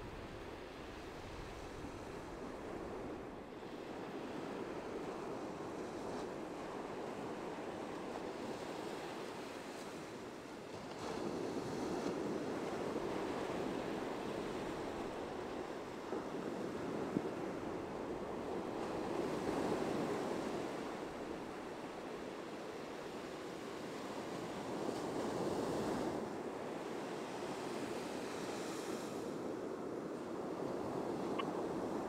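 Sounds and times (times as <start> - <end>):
ocean waves breaking on beach: 0.0 - 32.0.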